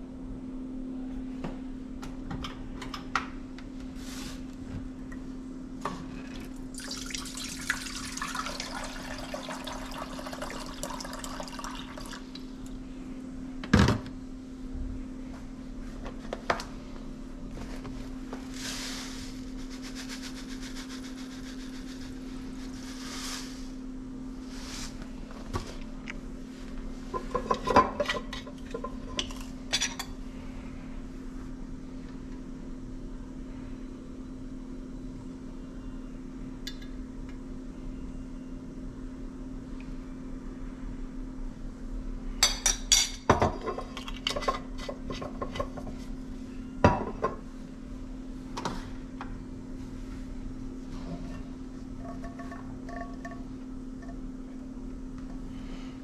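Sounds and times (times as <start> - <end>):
steady low hum: 0.0 - 56.0
dishes and utensils clinking: 27.1 - 30.1, 52.0 - 53.5.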